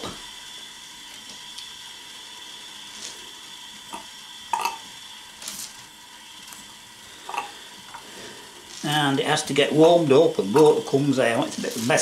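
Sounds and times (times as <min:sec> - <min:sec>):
steam hissing: 0:00.0 - 0:12.0
water sputtering spits: 0:05.3 - 0:12.0.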